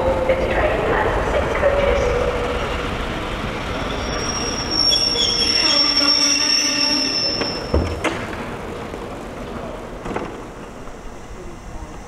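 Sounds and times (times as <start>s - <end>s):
train wheels squealing on rails: 3.4s - 8.0s.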